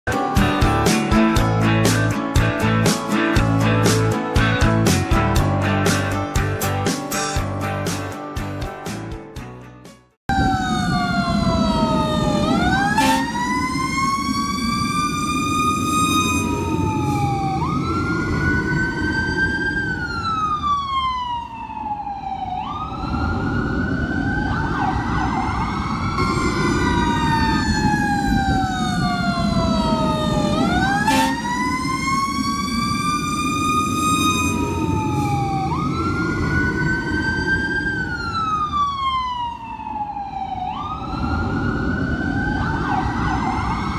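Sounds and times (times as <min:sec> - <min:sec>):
emergency sirens wailing: 0:00.1 - 0:04.1, 0:10.3 - 0:43.9
car road noise: 0:10.3 - 0:43.9.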